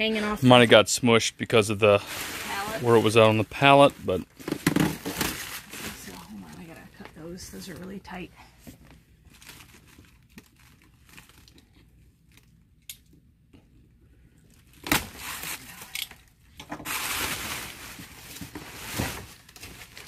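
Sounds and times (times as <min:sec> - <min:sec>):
plastic tarp crinkling: 0:01.8 - 0:06.7, 0:09.3 - 0:11.6, 0:16.8 - 0:20.0.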